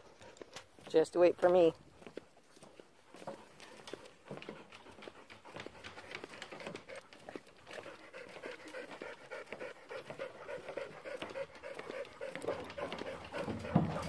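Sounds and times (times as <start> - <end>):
dog panting: 0.0 - 0.8, 2.4 - 14.0
footsteps on wooden boards: 0.0 - 14.0.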